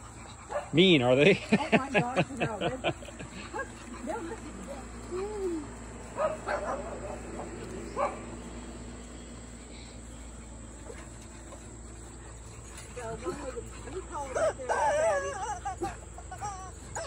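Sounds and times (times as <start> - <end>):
dog barking and yipping: 0.0 - 1.0, 6.0 - 8.5, 10.7 - 17.0.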